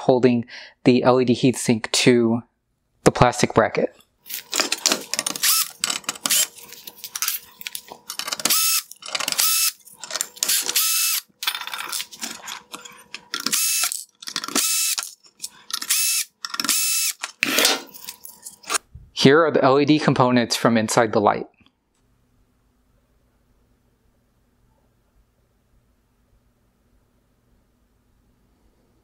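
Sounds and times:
tool and parts clicking: 0:04.3 - 0:18.8
cordless drill whine: 0:05.3 - 0:06.9, 0:08.4 - 0:09.8, 0:10.4 - 0:11.3, 0:13.4 - 0:15.1, 0:15.8 - 0:17.2.

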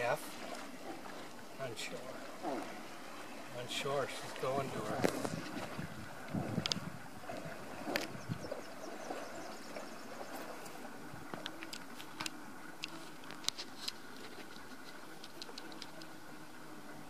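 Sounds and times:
faint high ticks: 0:06.6 - 0:06.8.

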